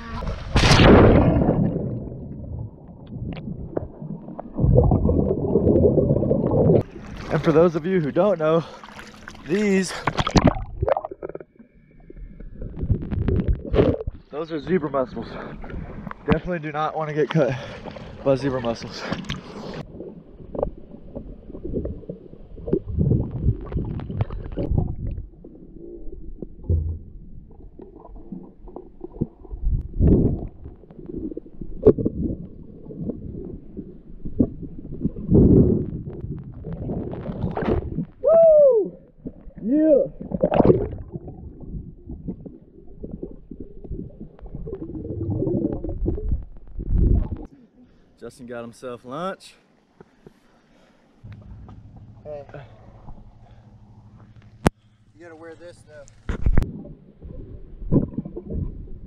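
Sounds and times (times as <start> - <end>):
muffled underwater rumbling and gurgling: 0.0 - 16.5, 17.6 - 47.5, 51.3 - 54.9, 56.1 - 59.0.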